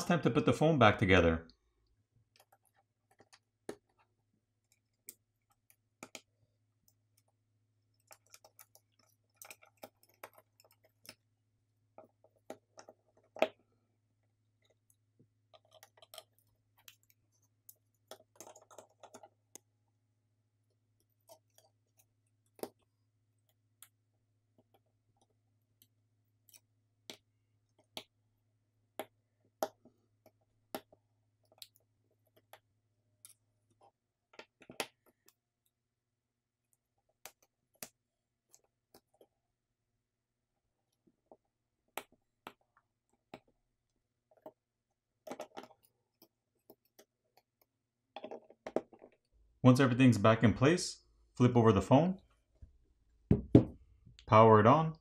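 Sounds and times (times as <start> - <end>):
small parts clicking and tapping: 2.2 - 11.3, 11.9 - 19.8, 20.6 - 28.2, 28.9 - 35.8, 36.6 - 39.4, 40.8 - 49.3.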